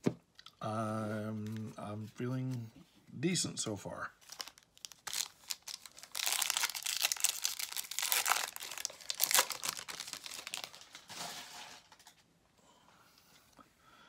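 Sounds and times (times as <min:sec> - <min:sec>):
wrapper crinkling and tearing: 0:04.2 - 0:12.2.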